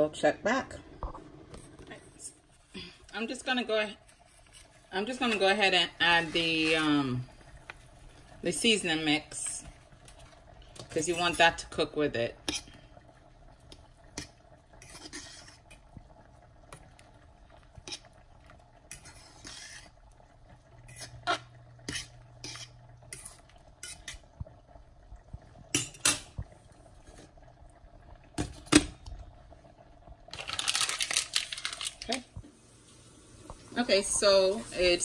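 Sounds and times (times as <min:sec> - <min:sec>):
metal spoon scraping saucepan: 0:14.8 - 0:15.7, 0:18.9 - 0:20.0, 0:20.9 - 0:24.2.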